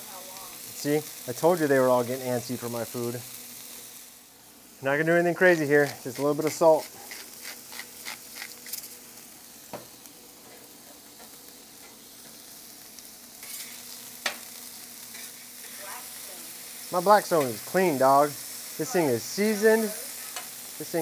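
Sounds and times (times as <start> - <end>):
fish sizzling on a griddle: 0.0 - 21.0
metal spatula scraping griddle: 13.4 - 14.4, 15.1 - 15.8.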